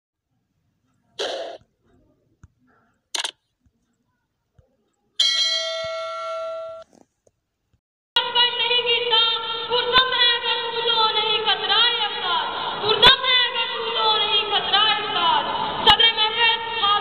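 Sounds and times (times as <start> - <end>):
short swish: 1.2 - 1.6.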